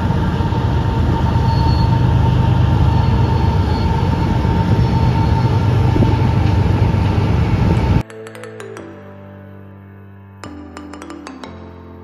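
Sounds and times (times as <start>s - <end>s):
train rumbling: 0.0s - 8.0s.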